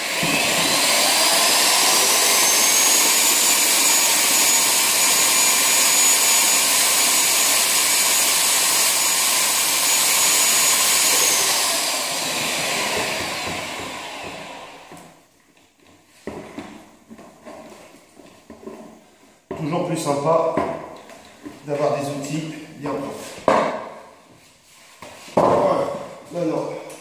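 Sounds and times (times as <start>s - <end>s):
paddle mixer motor whining: 0.0s - 15.0s.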